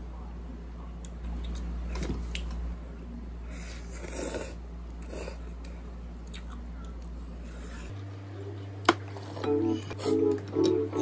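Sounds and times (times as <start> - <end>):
low steady hum: 0.0 - 11.0
person chewing noodles: 6.2 - 7.6.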